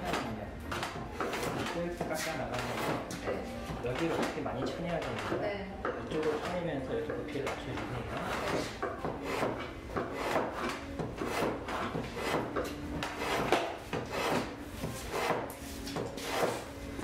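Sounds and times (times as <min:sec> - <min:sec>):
blade shaving wood: 0:10.2 - 0:15.4, 0:16.1 - 0:16.7.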